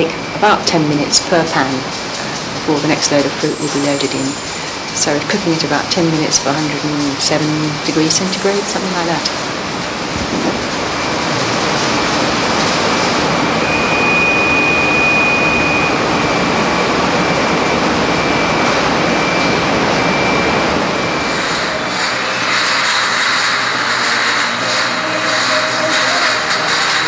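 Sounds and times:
factory noise with ticking: 0.0s - 27.0s
faint high whine: 13.2s - 22.5s.

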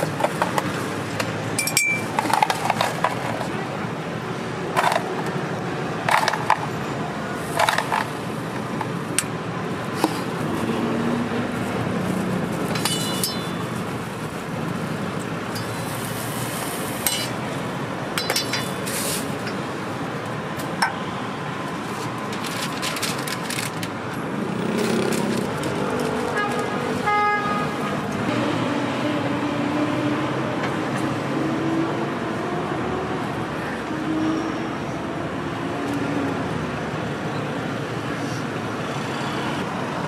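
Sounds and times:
street noise: 0.0s - 40.0s
metal utensils clinking on jars: 1.6s - 3.1s, 12.7s - 13.6s, 17.0s - 17.4s, 18.2s - 19.6s.

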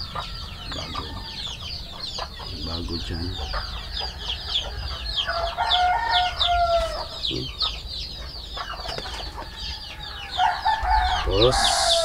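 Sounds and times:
chicks peeping: 0.0s - 12.0s
hen's drawn-out call: 10.3s - 12.0s.

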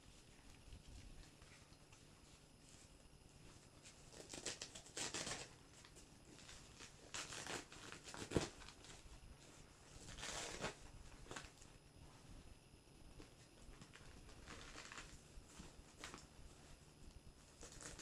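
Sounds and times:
velcro ripping: 4.1s - 5.6s, 6.7s - 8.9s, 10.0s - 11.4s, 17.6s - 18.0s.

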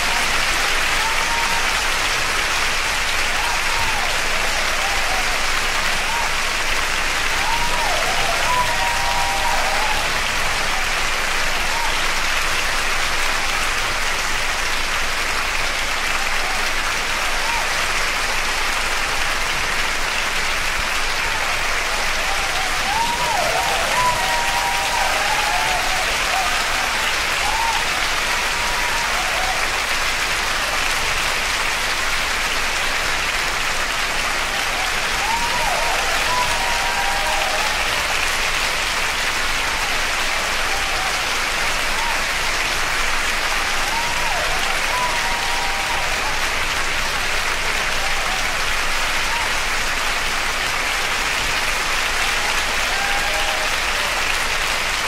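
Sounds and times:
audience applauding: 0.0s - 55.0s
voices shouting: 22.2s - 29.6s.

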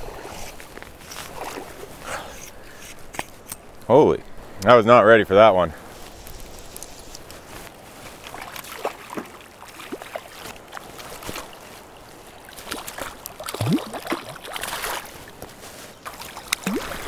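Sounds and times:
river water gurgling: 8.0s - 17.0s
fish thrashing splashes: 8.2s - 15.1s, 16.0s - 17.0s.

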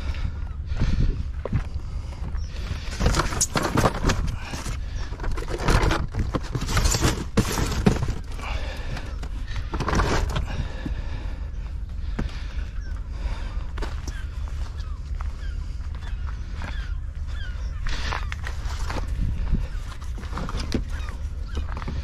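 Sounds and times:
steady low rumble: 0.0s - 22.0s
scrapes and knocks in a boat: 2.6s - 11.1s, 17.9s - 22.0s.

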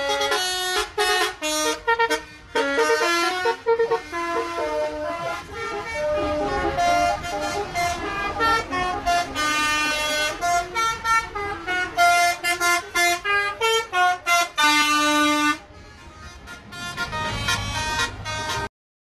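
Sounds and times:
bus horns playing short notes: 0.0s - 18.7s.

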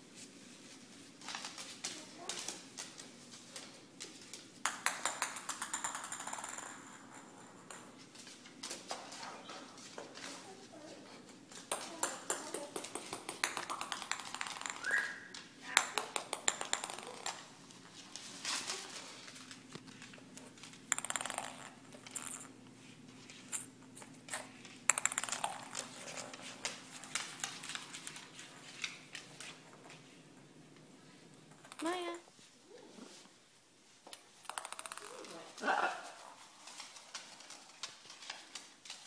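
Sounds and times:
ping pong ball bouncing on floor: 4.6s - 8.0s, 11.7s - 17.5s, 20.9s - 22.5s, 24.9s - 28.2s, 34.4s - 35.3s
parrot talking: 35.1s - 36.1s.

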